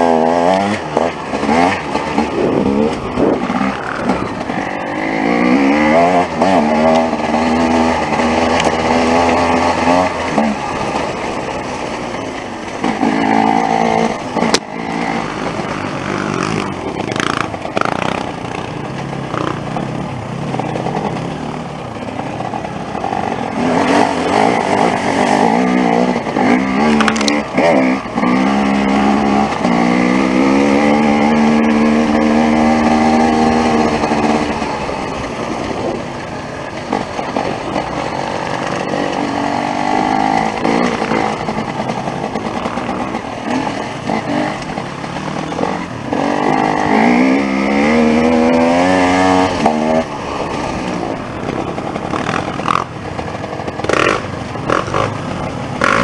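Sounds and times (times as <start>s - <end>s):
off-road motorcycle engine revving: 0.0s - 56.0s.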